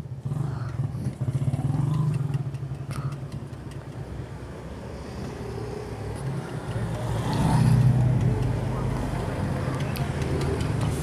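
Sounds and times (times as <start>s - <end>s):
motorcycle engine idling: 0.0s - 4.6s
faint clicks: 1.9s - 4.1s.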